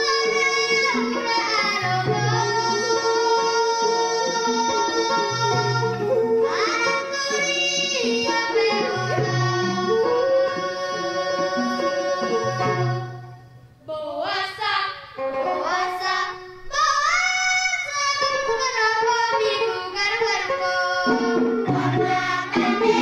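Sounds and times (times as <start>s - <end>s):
held folk melody: 0.0s - 13.9s, 15.1s - 23.0s
drumming: 21.0s - 23.0s.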